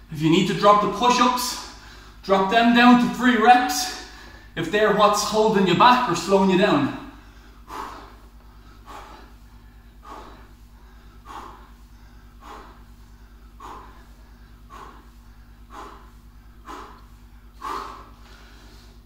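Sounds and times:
faint low hum: 0:00.0 - 0:19.0
man breathing out hard: 0:07.1 - 0:19.0.

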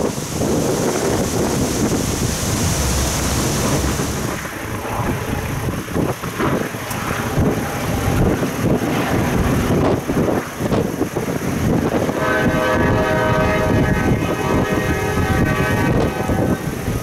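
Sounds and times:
diesel freight train passing: 0:00.0 - 0:17.0
wind buffeting microphone: 0:00.0 - 0:17.0
locomotive air horn chord: 0:12.0 - 0:16.9.

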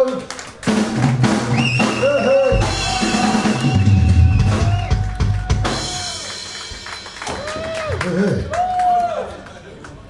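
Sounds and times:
live band playing: 0:00.5 - 0:08.0
bass drum and snare hits: 0:01.9 - 0:06.1
heavy low bass: 0:02.5 - 0:06.3.

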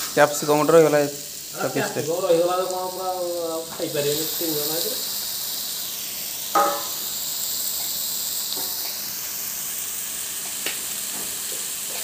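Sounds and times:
food frying hiss: 0:00.0 - 0:12.0
loud ringing knock: 0:06.6 - 0:07.0.

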